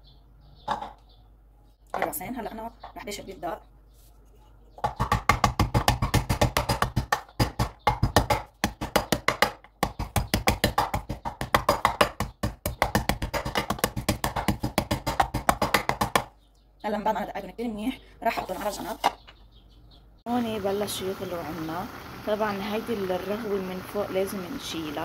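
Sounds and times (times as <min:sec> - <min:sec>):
pestle pounding in a mortar: 0:04.8 - 0:16.3.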